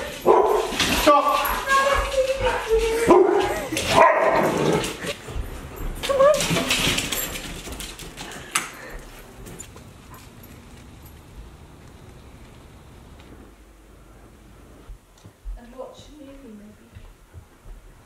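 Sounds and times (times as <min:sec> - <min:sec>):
dog whining: 0:01.9 - 0:05.2, 0:06.0 - 0:06.8.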